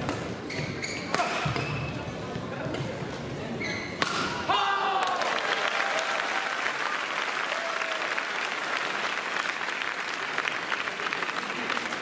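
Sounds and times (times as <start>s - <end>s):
spectators applauding: 5.0s - 12.0s.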